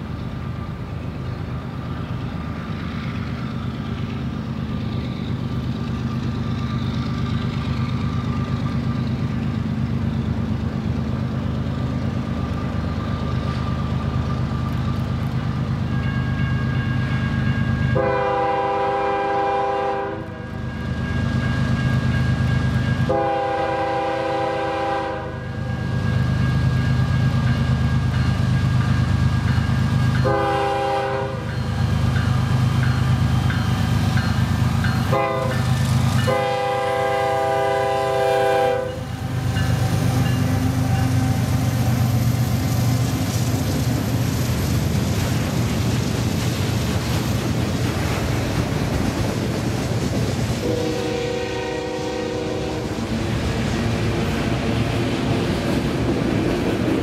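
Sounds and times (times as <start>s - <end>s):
locomotive rumble: 0.0s - 57.0s
rail cars clattering: 0.0s - 57.0s
locomotive horn blasts: 17.9s - 20.5s, 23.1s - 25.6s, 30.2s - 31.5s, 35.1s - 35.6s, 36.2s - 39.1s, 50.6s - 53.0s.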